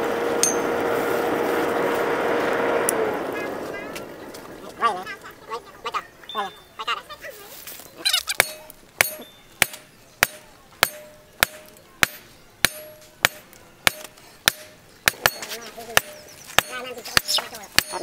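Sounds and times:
anvil ringing: 0.4s - 0.8s, 8.4s - 18.0s
hammer clanking on hot steel: 0.4s - 0.8s, 8.3s - 18.0s.

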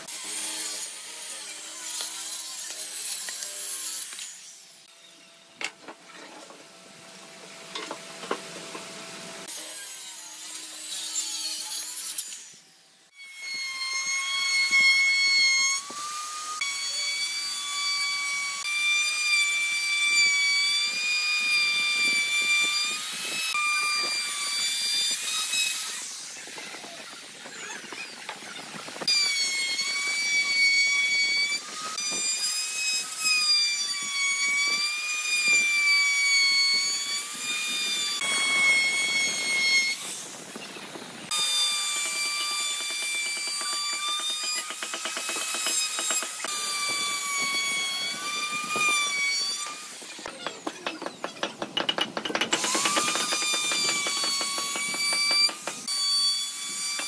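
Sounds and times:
power tool whining: 12.5s - 57.0s.

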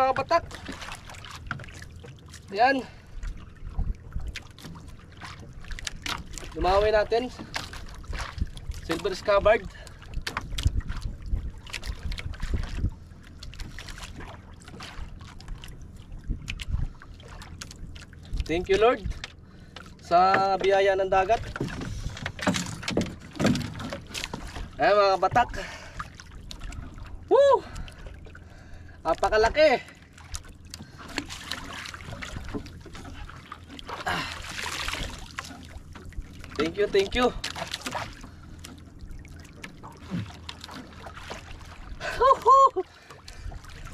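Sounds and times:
knocks and splashes: 0.0s - 43.9s
water slapping against boat hull: 0.0s - 43.9s
wind buffeting microphone: 3.1s - 4.4s, 6.4s - 13.3s, 16.0s - 17.1s
water splashing and dripping: 30.1s - 43.9s.

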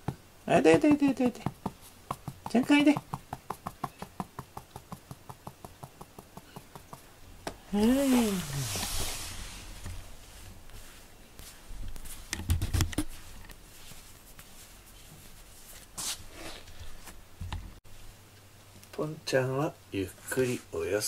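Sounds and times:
handling rustles and taps: 0.0s - 7.6s, 9.8s - 17.8s.

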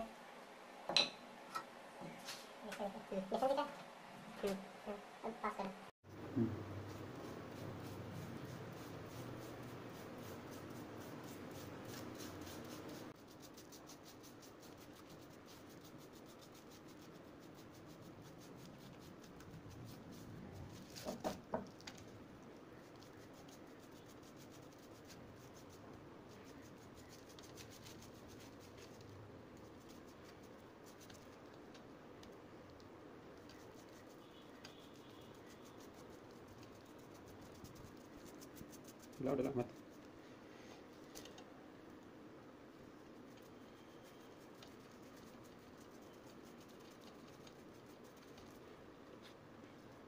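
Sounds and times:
paintbrush scratching on concrete: 6.7s - 21.4s, 22.8s - 31.6s, 33.3s - 40.1s, 43.2s - 50.0s.

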